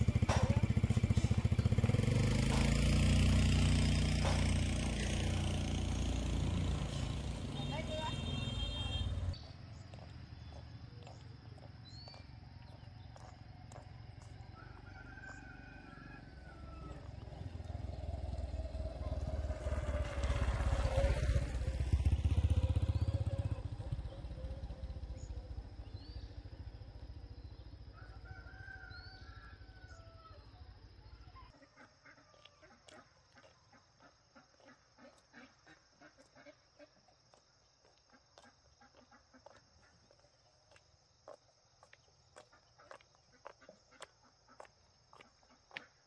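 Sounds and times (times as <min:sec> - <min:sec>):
motor vehicle passing by: 0:00.0 - 0:31.6.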